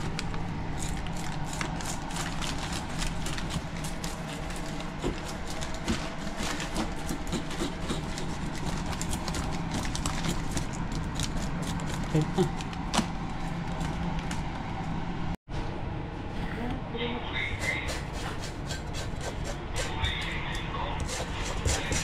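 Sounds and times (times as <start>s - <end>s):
plastic bag crinkling: 0.0s - 7.1s, 8.2s - 14.0s.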